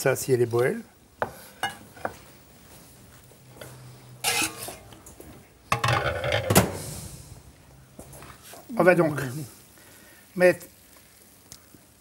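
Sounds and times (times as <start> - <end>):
utensils scraping and clinking dishes: 3.6 - 4.9.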